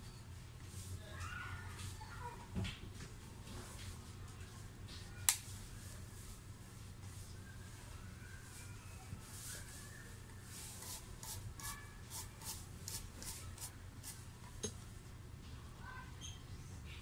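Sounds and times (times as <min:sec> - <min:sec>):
scratchy rubbing strokes: 0:10.4 - 0:14.2.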